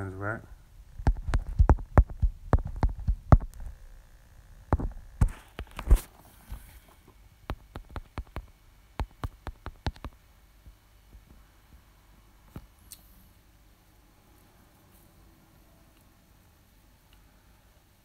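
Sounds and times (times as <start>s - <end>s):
fingers typing on touchscreen: 7.5s - 10.2s.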